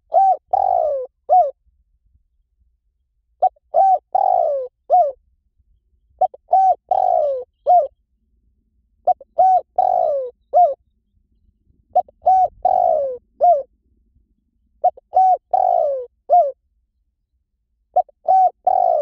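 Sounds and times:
dove cooing: 0.0s - 1.6s, 3.4s - 5.2s, 6.2s - 8.0s, 9.0s - 10.8s, 11.9s - 13.7s, 14.8s - 16.6s, 17.9s - 19.0s.

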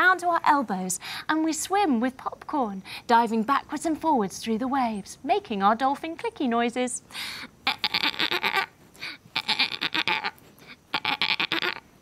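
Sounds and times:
person imitating dolphin clicks: 7.6s - 11.9s.

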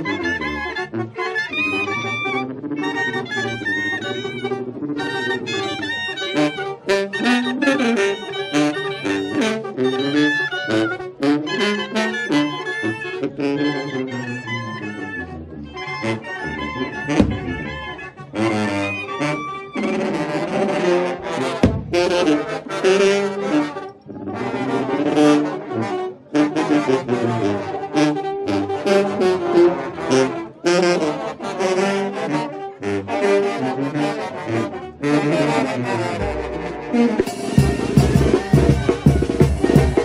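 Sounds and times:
wind band playing: 0.0s - 40.0s.

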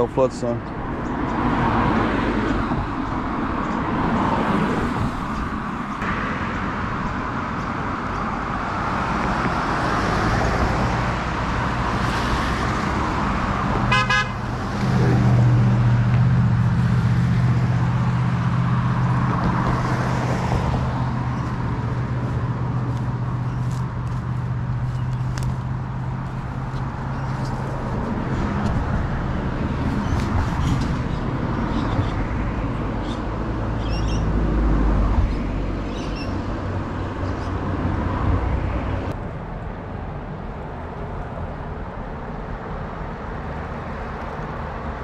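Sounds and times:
cars passing on bridge: 0.0s - 45.0s
low traffic drone: 0.0s - 45.0s
car horn toot: 13.9s - 14.4s.

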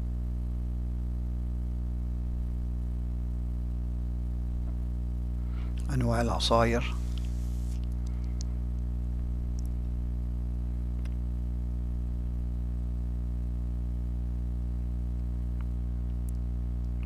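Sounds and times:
steady low hum: 0.0s - 17.0s
faint clicks: 7.1s - 8.9s.

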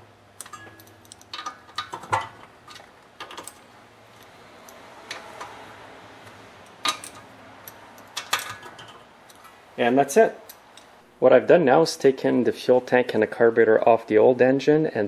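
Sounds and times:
metal socket clinks: 0.4s - 1.9s.

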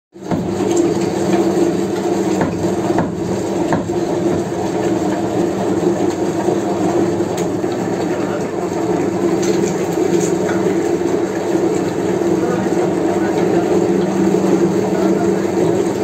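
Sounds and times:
meat mincer machine grinding: 0.2s - 16.0s.

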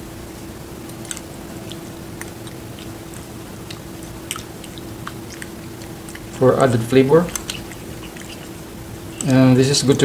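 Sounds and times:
steady low hum: 0.0s - 10.0s
wet squishing of stirred soup: 0.9s - 8.8s.

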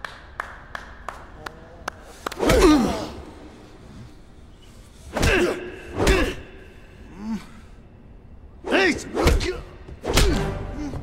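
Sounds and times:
fighters grunting: 2.4s - 3.6s, 5.1s - 7.7s.

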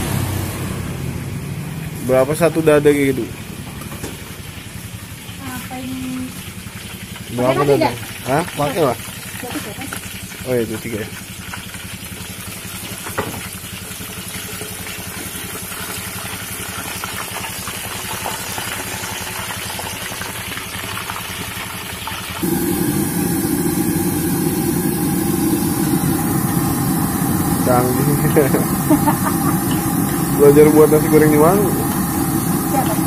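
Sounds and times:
chicken deep-frying in oil: 0.0s - 33.0s
low engine-like rumble: 22.4s - 33.0s.

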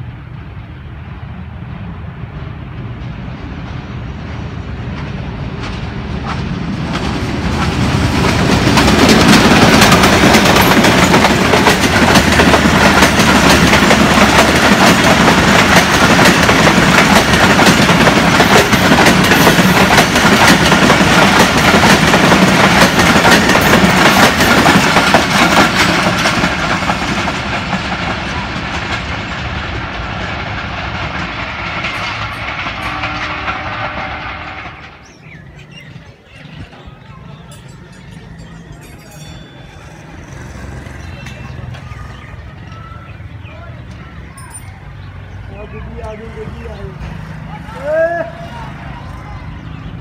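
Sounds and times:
diesel locomotive passing: 0.0s - 50.0s
train wheels clattering over rail joints: 4.4s - 35.7s.

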